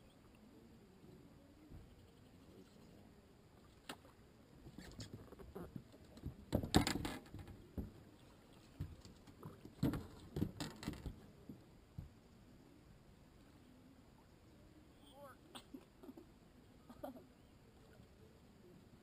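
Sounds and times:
knocks and clatter on boat deck: 6.2s - 8.0s, 9.8s - 11.2s.

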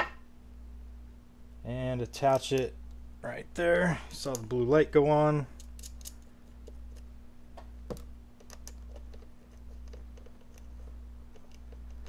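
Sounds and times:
steady low hum: 0.0s - 12.0s
hands handling wiring clicks: 5.6s - 10.7s.

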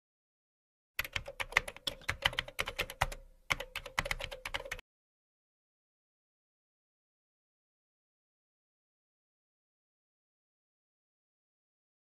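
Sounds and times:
keyboard key clicks: 1.0s - 4.8s.

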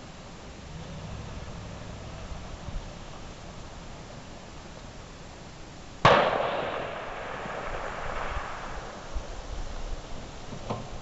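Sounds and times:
rifle shot with rolling echo: 6.0s - 10.5s.

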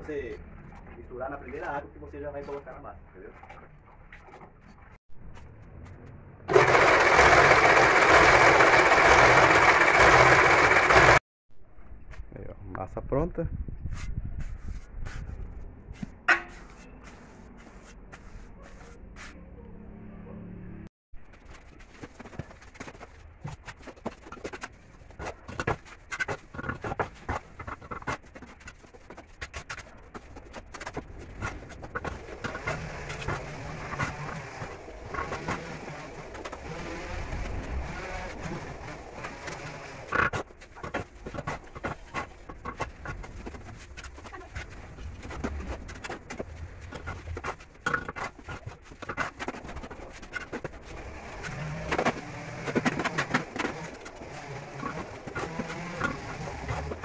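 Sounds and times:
trowel scraping mortar: 23.6s - 57.0s.

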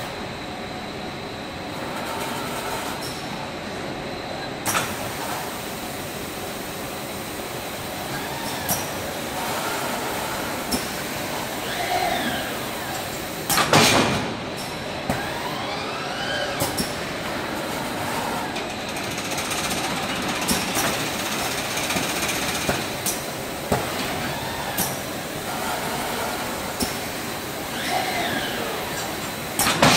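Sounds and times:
packing machine running: 8.0s - 29.9s
rising and falling machine whine: 15.2s - 16.6s.

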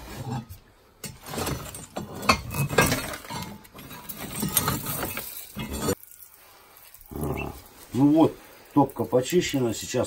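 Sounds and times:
iron grate clinking and scraping: 0.2s - 7.1s.

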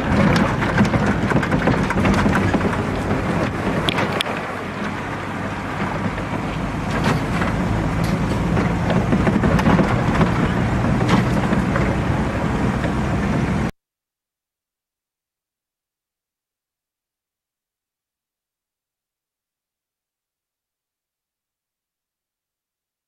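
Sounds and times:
diesel engine running: 0.0s - 13.7s.

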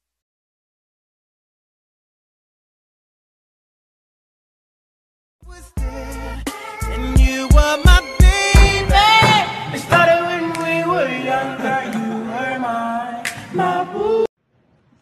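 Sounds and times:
background song with singing: 5.5s - 14.3s.

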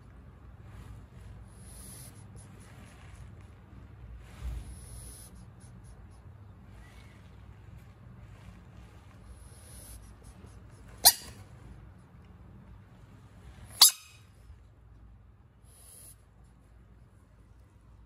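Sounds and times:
frog squawking: 11.0s - 11.3s, 13.8s - 14.1s.

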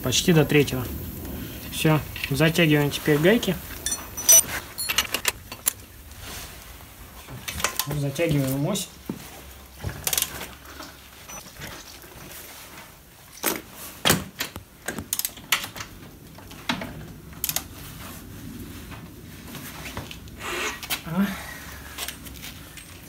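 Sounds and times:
wrench clicking: 3.8s - 5.2s
tool clanks: 3.8s - 5.7s.

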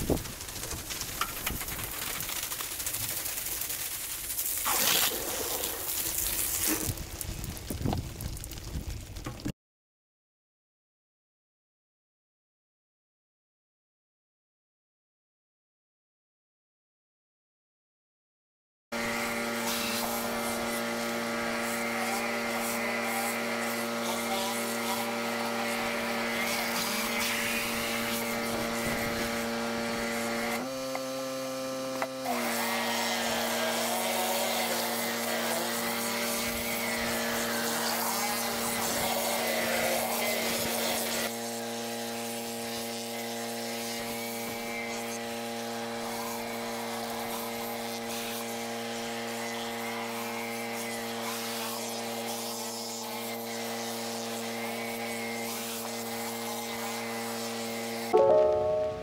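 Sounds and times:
pressure washer running: 0.0s - 7.0s, 19.0s - 59.0s.

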